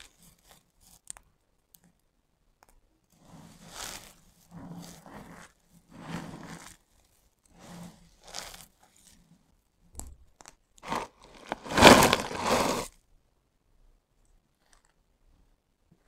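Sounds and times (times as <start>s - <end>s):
hands crunching soap shavings: 10.9s - 12.9s.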